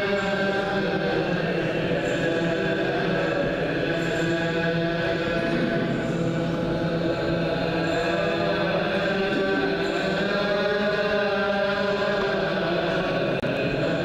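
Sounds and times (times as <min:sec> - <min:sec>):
men chanting in unison: 0:00.0 - 0:14.0.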